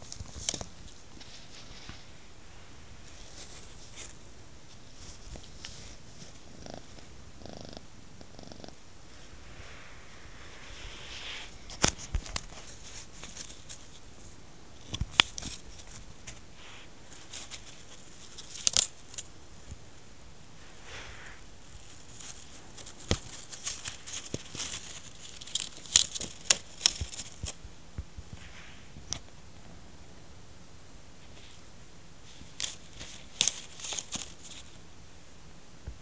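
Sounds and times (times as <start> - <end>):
plastic packaging crinkling: 17.1 - 19.3, 21.8 - 27.6, 32.3 - 34.8.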